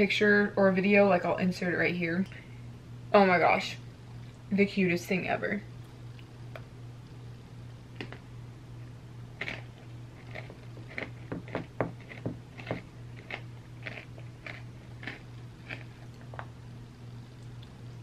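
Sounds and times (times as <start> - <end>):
steady low hum: 0.0 - 18.0
chewing and mouth clicks: 9.4 - 16.5.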